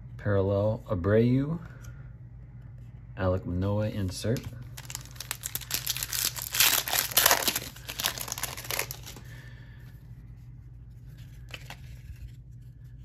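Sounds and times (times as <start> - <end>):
card pack wrapper crinkling: 4.2 - 9.3, 11.2 - 12.4.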